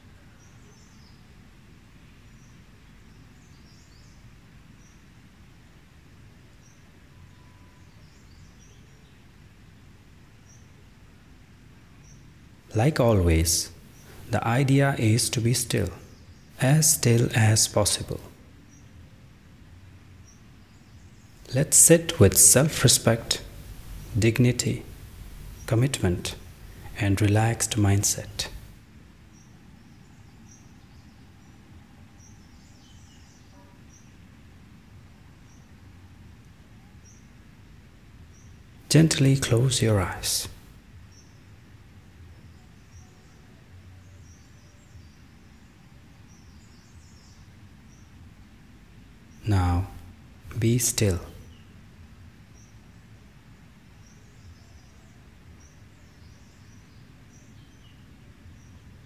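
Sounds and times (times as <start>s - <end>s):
small birds chirping: 0.0s - 5.8s, 6.5s - 11.0s, 11.9s - 19.3s, 20.1s - 34.5s, 35.3s - 37.4s, 38.2s - 59.0s
small bird chirping: 20.2s - 34.2s
low background rumble: 21.2s - 28.8s.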